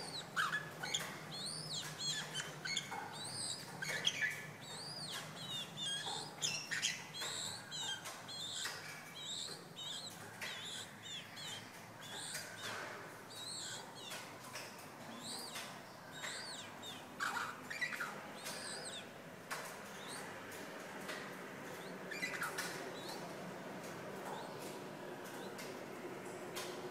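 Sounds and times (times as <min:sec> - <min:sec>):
bird chirping and whistling: 0:00.0 - 0:14.2, 0:15.1 - 0:19.1, 0:21.8 - 0:23.2
soft bird clicks: 0:00.0 - 0:26.9.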